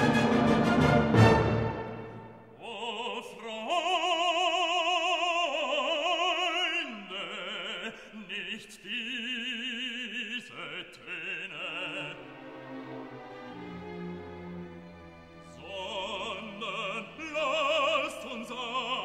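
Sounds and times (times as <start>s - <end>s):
operatic voice singing: 2.5s - 12.6s, 15.4s - 19.0s.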